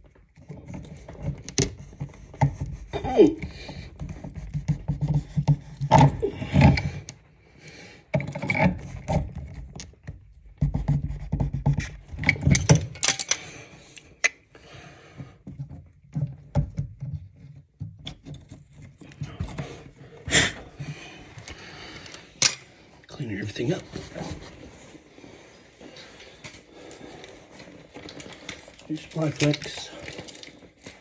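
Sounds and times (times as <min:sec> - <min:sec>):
wrenches clinking on metal: 0:12.1 - 0:13.5, 0:25.9 - 0:31.0.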